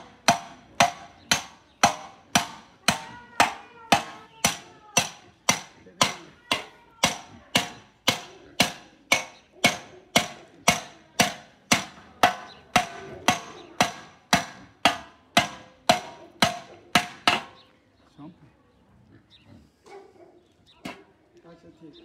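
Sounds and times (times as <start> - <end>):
hammer striking copper: 0.0 - 17.6.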